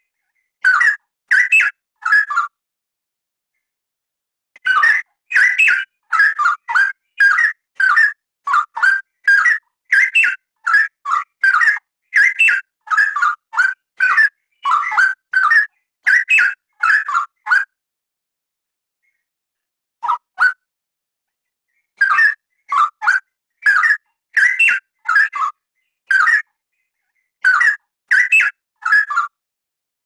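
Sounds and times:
bird singing: 0.0s - 2.6s, 4.6s - 17.8s, 21.7s - 29.4s.

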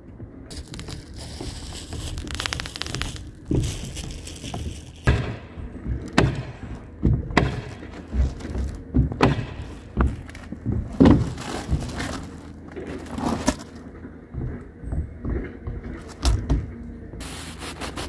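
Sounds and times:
thuds and knocks on plywood: 4.5s - 12.3s.

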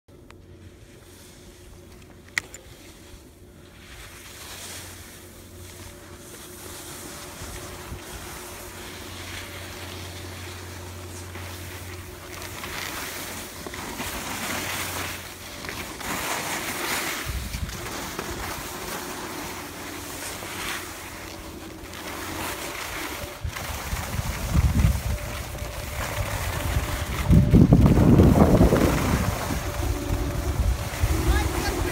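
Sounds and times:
skis scraping over snow: 0.4s - 31.9s
wind rumble on microphone: 16.1s - 19.2s, 22.4s - 31.9s.

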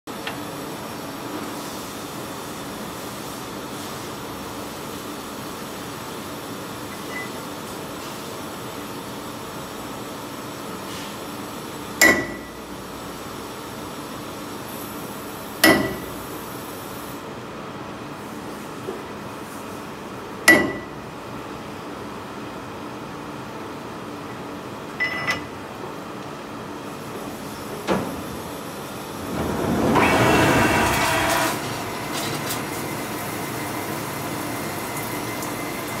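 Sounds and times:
metal-on-metal knocks with ringing: 12.0s - 12.5s, 15.6s - 16.1s, 20.5s - 21.0s
lathe spindle spinning: 29.2s - 32.1s.

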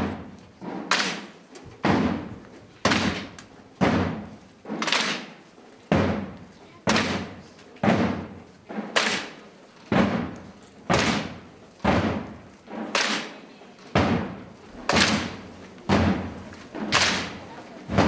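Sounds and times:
marching drum beat: 1.8s - 5.2s, 5.9s - 9.2s, 9.9s - 13.1s, 13.9s - 18.0s.

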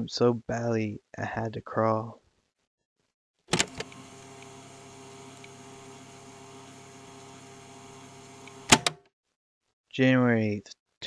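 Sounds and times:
electrical hum: 3.5s - 8.9s.

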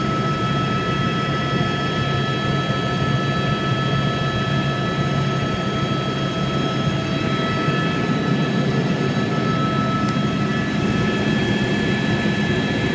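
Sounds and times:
helicopter engine and rotor rumble: 0.0s - 12.9s
high whining tones: 5.5s - 12.9s.

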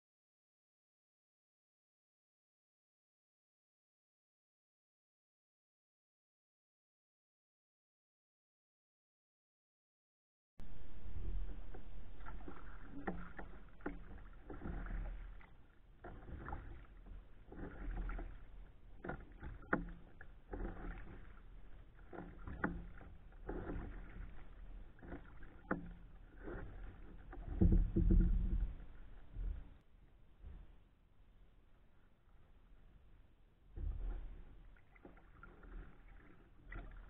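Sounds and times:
low rumble: 10.6s - 15.6s
kayak paddle strokes in water: 10.6s - 30.9s, 32.3s - 37.0s.

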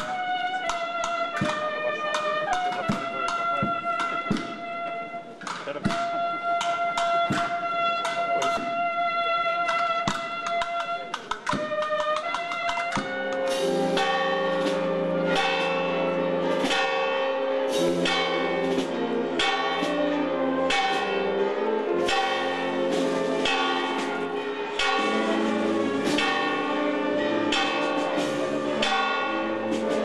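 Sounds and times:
music: 0.0s - 30.0s
church bells pealing: 12.8s - 30.0s.

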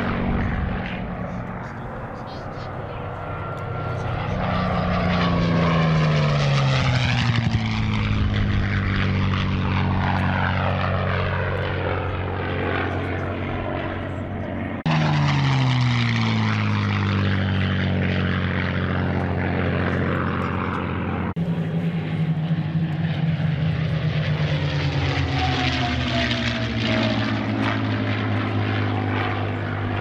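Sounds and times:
piston aircraft engines flying past: 0.0s - 30.0s.

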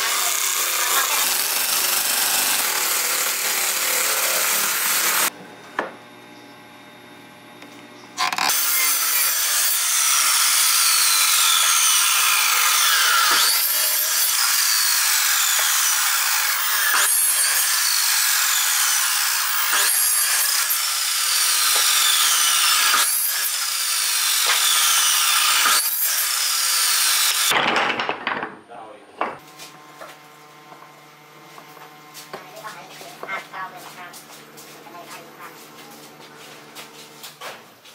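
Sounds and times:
miter saw cutting wood: 0.0s - 27.6s
wood knocking on a bench: 5.8s - 6.0s, 27.6s - 28.6s.

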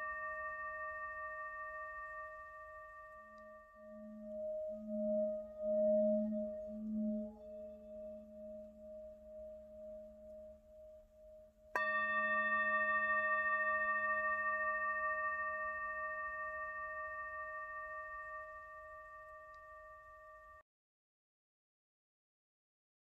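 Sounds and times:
singing bowl ringing: 0.0s - 20.6s.

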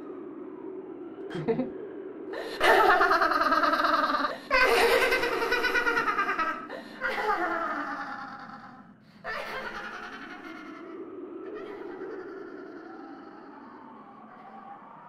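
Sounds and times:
character laughing: 2.4s - 13.5s.

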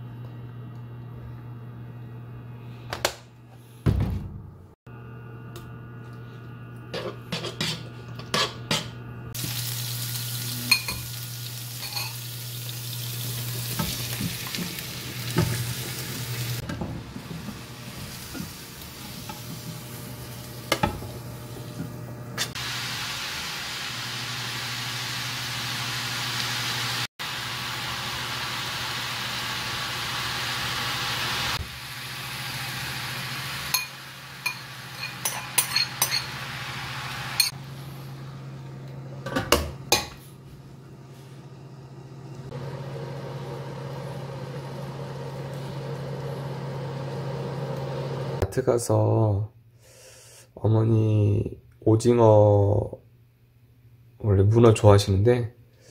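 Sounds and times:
food sizzling in hot oil: 9.4s - 21.7s, 22.4s - 37.6s.

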